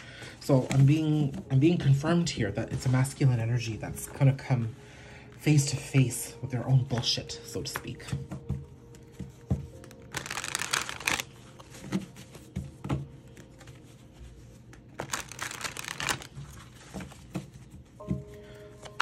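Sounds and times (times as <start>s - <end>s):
cards riffling and slapping: 9.1s - 13.9s, 14.6s - 18.0s.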